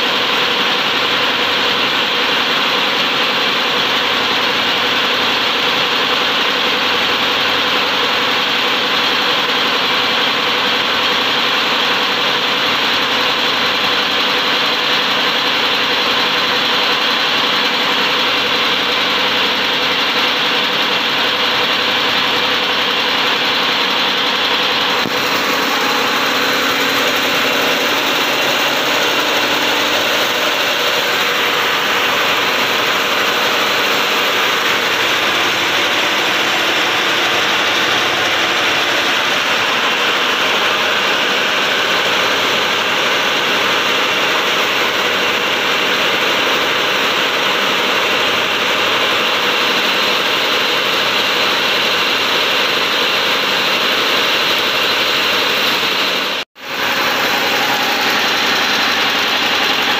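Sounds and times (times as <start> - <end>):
packing machine din: 13.2 - 59.9.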